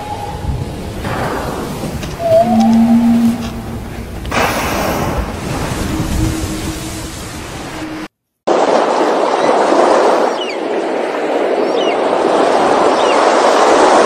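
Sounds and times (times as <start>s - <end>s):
wind and surf rushing: 0.0s - 14.0s
faint high chirps: 2.2s - 3.8s.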